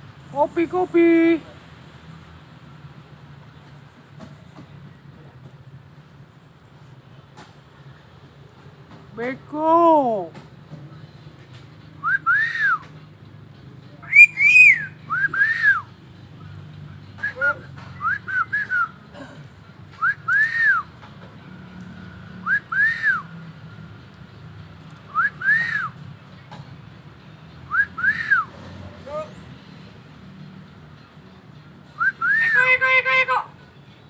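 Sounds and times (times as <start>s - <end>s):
myna two-note whistle: 14.0s - 15.8s
quick run of whistled notes: 14.1s - 15.8s.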